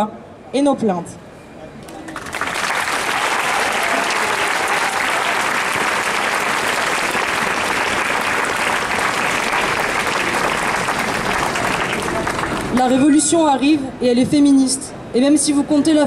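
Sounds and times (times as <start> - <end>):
crowd applauding: 1.8 - 13.1.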